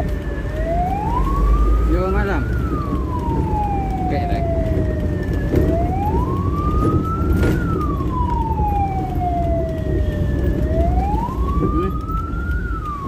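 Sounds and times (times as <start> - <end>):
ambulance siren wailing: 0.0 - 13.0
engine and road rumble: 0.0 - 13.0.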